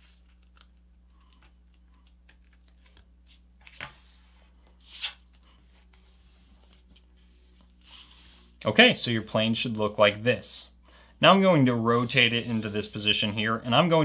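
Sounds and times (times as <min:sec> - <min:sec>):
paper rustling and creasing: 0:00.0 - 0:09.8, 0:11.8 - 0:13.6
paper swishes: 0:03.6 - 0:08.6, 0:11.9 - 0:13.4.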